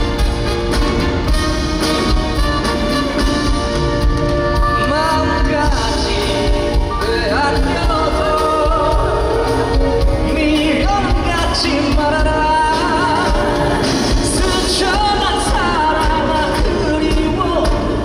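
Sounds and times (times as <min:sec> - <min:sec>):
band playing pop music: 0:00.0 - 0:18.0
steady drum beat: 0:00.0 - 0:18.0
person singing with vibrato: 0:04.2 - 0:18.0.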